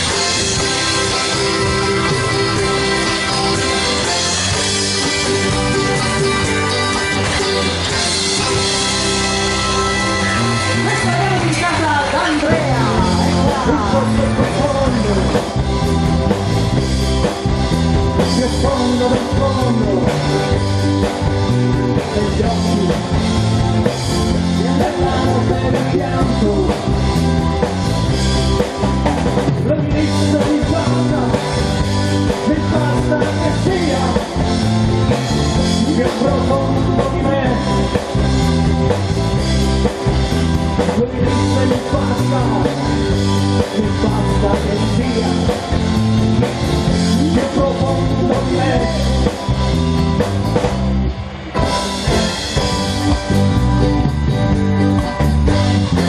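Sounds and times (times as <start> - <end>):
drum kit beat: 0.0 - 56.0
electric bass: 0.0 - 56.0
electric guitars: 0.0 - 56.0
person singing: 7.8 - 16.3, 18.2 - 27.3, 29.5 - 38.4, 40.8 - 49.6.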